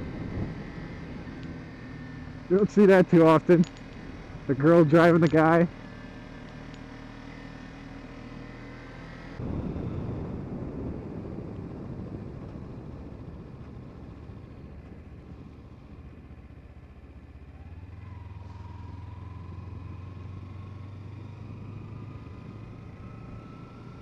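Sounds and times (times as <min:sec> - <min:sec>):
wind noise on microphone: 0:00.0 - 0:01.3, 0:09.4 - 0:14.5
faint engine whine: 0:00.0 - 0:24.0
motorcycle engine running: 0:00.0 - 0:24.0.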